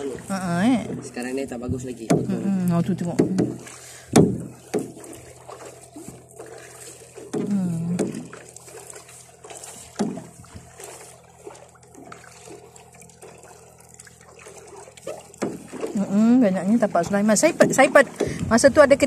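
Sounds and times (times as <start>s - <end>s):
water lapping and trickling: 0.0s - 19.0s
knock: 3.1s - 3.6s, 4.2s - 4.9s.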